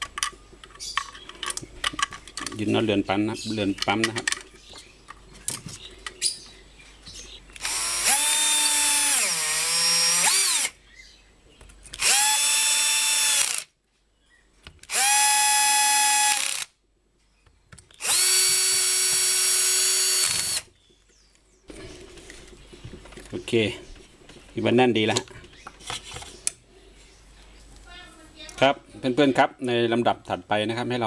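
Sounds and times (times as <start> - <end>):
drill-driver whining: 7.6 - 10.8, 12.0 - 13.7, 14.8 - 16.7, 18.0 - 20.7.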